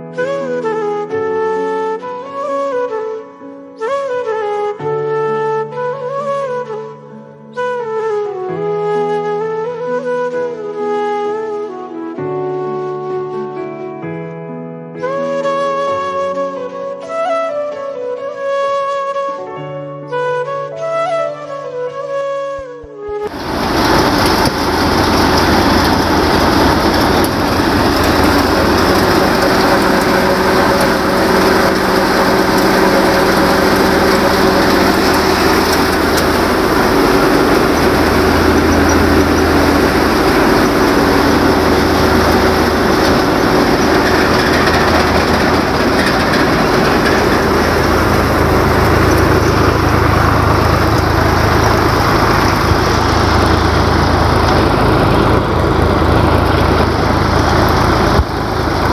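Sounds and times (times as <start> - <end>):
thresher whirring rush: 23.2 - 58.9
tractor diesel engine running: 23.3 - 58.9.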